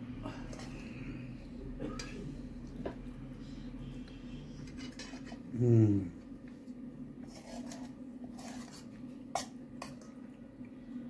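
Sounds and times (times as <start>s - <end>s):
person humming: 5.5s - 6.2s.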